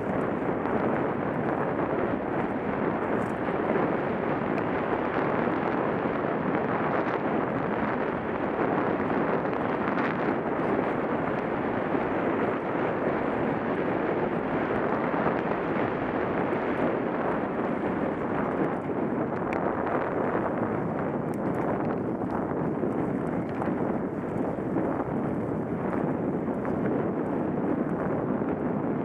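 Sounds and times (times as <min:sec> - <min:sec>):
wind buffeting microphone: 0:00.0 - 0:29.0.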